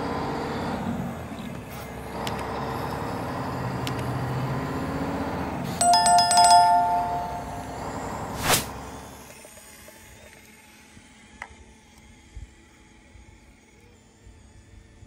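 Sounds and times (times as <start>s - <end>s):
notification bell ring: 5.8s - 8.0s.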